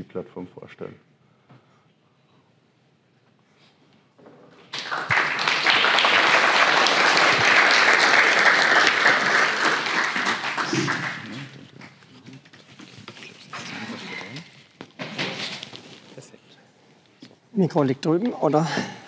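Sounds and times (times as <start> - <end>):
audience applauding: 4.7 - 12.1.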